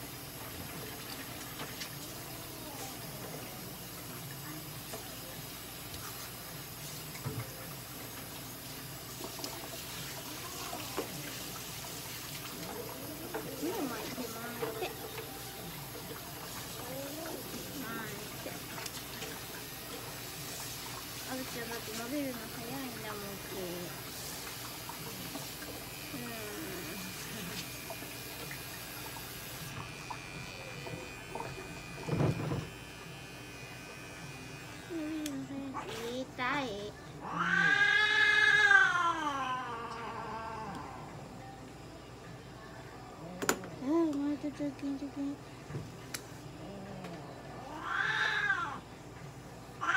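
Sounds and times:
pet trimmer motor whine: 29.7 - 35.4.

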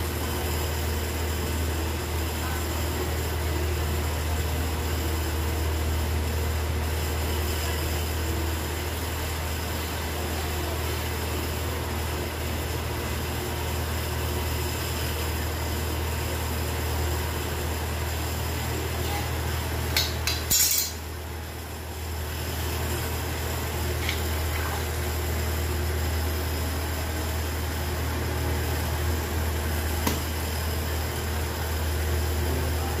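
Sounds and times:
low hum with hiss: 0.0 - 33.0
sharp knocks and clinks: 20.0 - 21.0.

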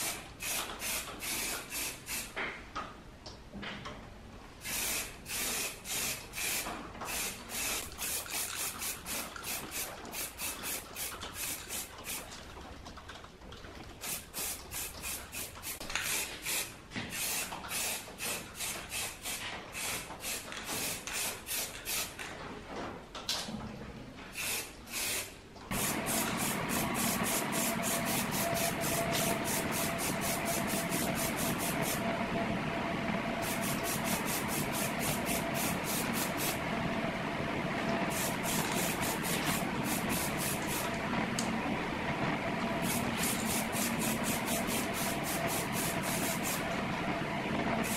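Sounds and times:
hand sanding sheet metal: 24.4 - 32.1, 33.4 - 36.6, 38.1 - 40.9, 42.8 - 46.7.

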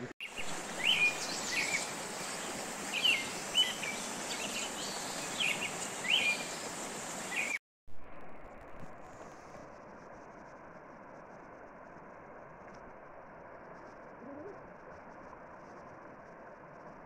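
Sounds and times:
bird chirping: 0.0 - 7.6
outdoor hiss: 0.0 - 17.0.

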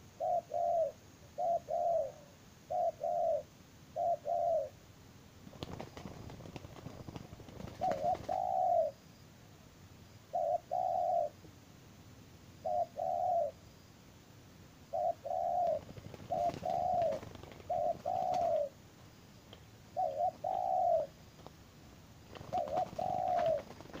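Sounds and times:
dove cooing: 0.0 - 4.8, 5.6 - 9.0, 10.3 - 11.4, 12.6 - 13.6, 14.9 - 18.8, 19.9 - 21.2, 22.3 - 24.0.

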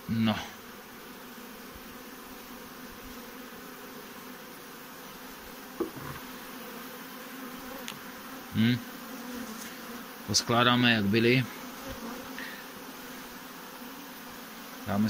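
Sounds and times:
bees buzzing: 0.0 - 15.0
faint tap: 5.8 - 6.3.

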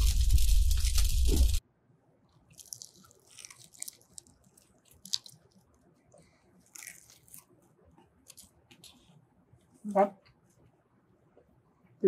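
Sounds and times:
chewing crunches: 2.4 - 9.0.

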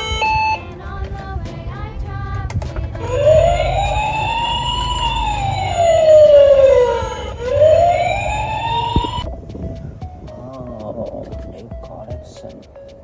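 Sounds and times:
toy ambulance wail siren: 0.0 - 0.7, 3.0 - 9.2.

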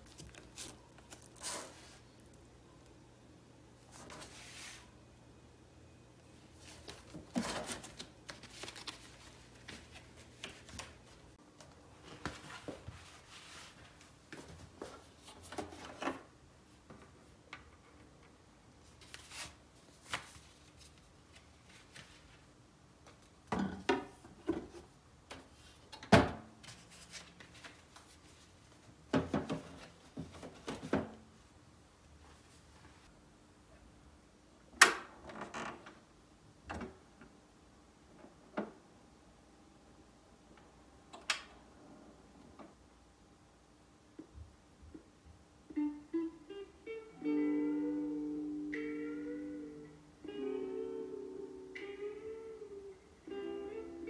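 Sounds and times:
cardboard record sleeves rustling: 0.0 - 2.3, 3.8 - 5.0, 6.5 - 16.2, 18.8 - 22.5, 26.6 - 29.0.

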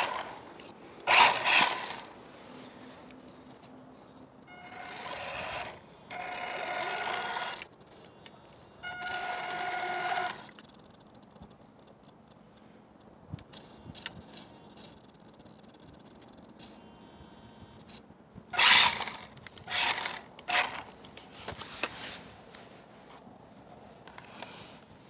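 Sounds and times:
toy car electric motor whining: 0.0 - 2.2, 3.3 - 11.0, 18.6 - 20.9.

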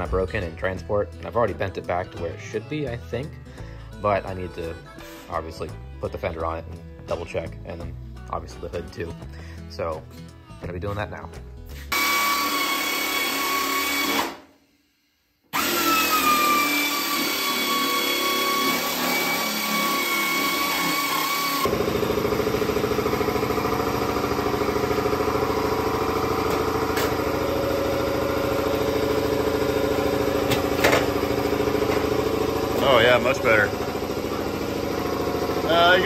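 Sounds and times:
power tool high whine: 11.9 - 14.4, 15.5 - 36.0.

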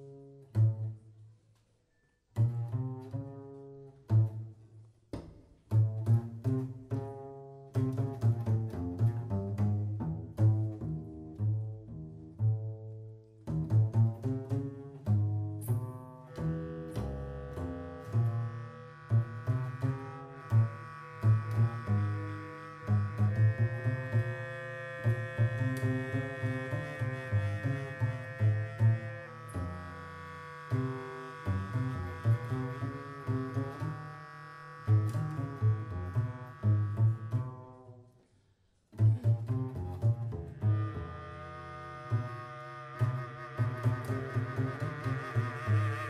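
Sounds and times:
double bass low notes: 0.0 - 1.4, 2.3 - 46.0
bass clarinet held tone: 15.0 - 38.0, 39.0 - 46.0.

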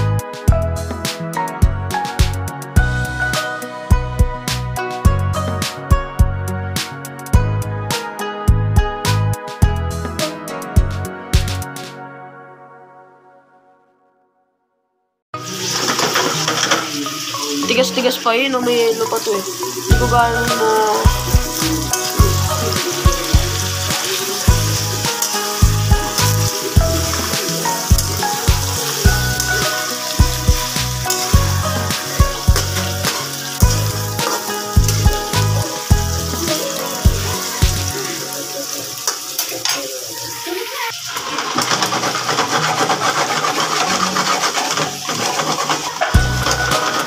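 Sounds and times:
background music with beat: 0.0 - 12.2, 19.6 - 39.9, 46.0 - 47.0
fries frying in hot oil: 15.4 - 47.0.

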